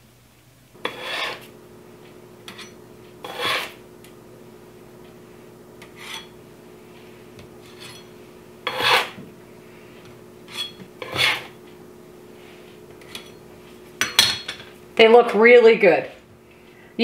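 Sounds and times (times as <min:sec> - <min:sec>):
spatula scraping parchment: 0:00.8 - 0:01.5, 0:02.5 - 0:03.8, 0:05.8 - 0:06.4, 0:07.0 - 0:09.2, 0:10.4 - 0:11.6.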